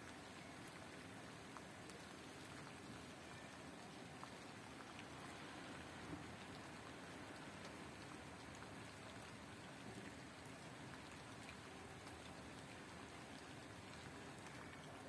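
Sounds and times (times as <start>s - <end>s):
patter of falling wet snow: 0.0s - 15.0s.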